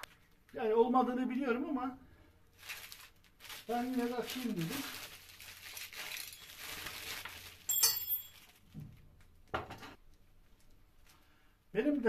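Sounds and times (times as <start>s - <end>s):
plastic bag crinkling: 2.5s - 7.7s, 8.3s - 8.7s.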